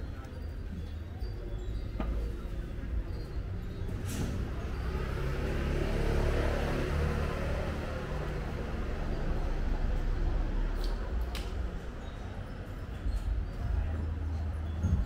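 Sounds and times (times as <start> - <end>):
low traffic rumble: 0.0 - 15.0
motor vehicle passing: 4.3 - 11.1.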